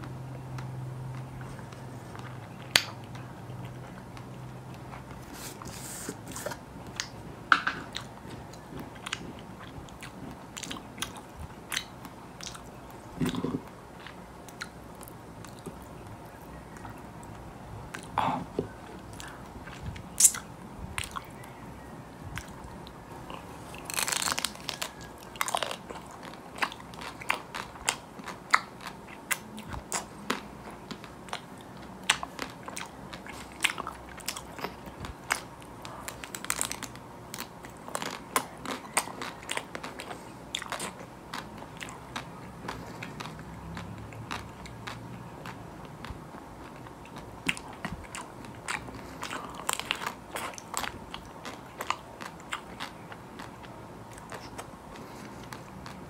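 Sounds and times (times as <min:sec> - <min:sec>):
wet chewing: 0:00.0 - 0:56.0
crunching bite: 0:23.3 - 0:30.4.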